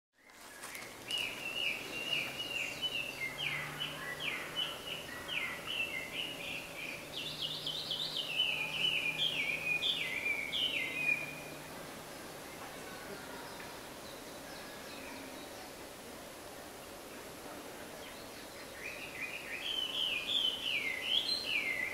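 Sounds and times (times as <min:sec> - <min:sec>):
songbird whistling song: 0:00.2 - 0:11.6, 0:18.0 - 0:21.9.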